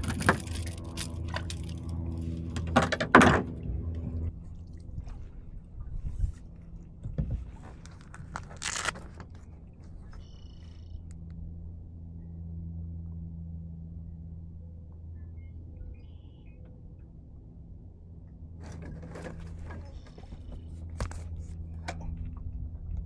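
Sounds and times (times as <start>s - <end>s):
low hum: 0.0s - 23.0s
paddle splashes and drips: 4.3s - 10.3s.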